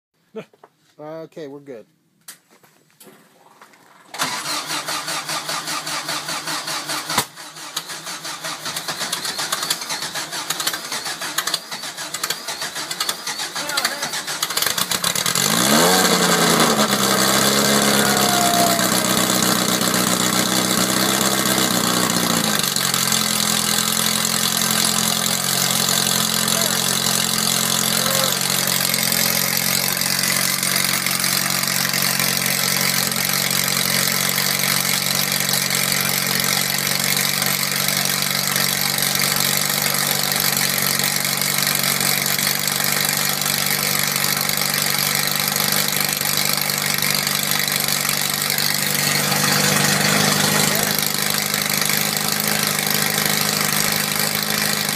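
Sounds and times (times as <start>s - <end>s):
race engine revving and idling: 12.7s - 54.9s.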